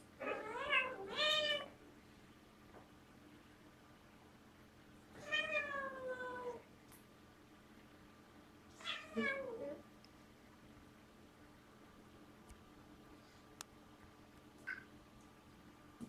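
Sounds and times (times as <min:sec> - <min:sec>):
cat meowing: 0:08.8 - 0:09.6.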